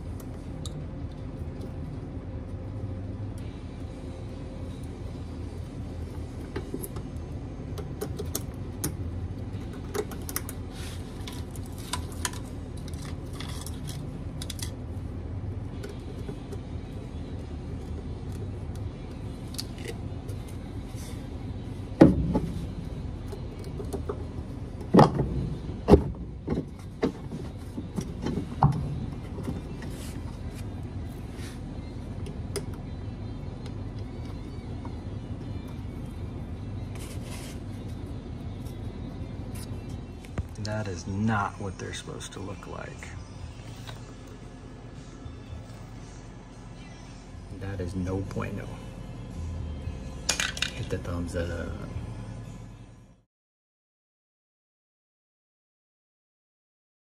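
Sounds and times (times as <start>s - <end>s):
low hum: 0.0s - 53.2s.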